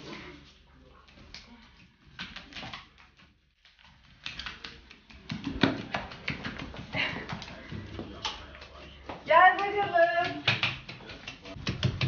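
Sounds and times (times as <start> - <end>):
footsteps on wooden floor: 5.1 - 12.0.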